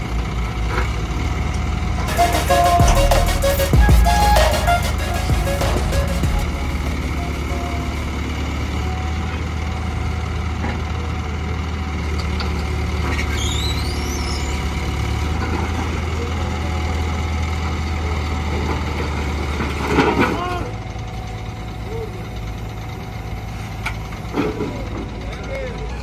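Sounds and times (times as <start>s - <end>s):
diesel engine idling: 20.5s - 26.0s.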